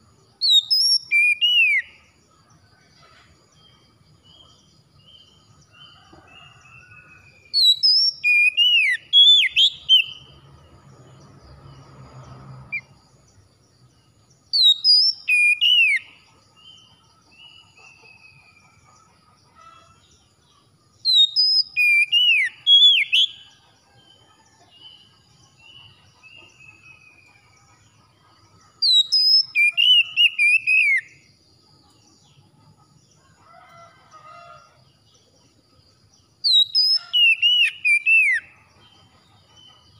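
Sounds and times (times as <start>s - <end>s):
bird singing whistled phrases: 0.4s - 1.9s, 7.5s - 10.3s, 14.6s - 16.1s, 21.1s - 23.4s, 28.8s - 31.1s, 36.5s - 38.5s.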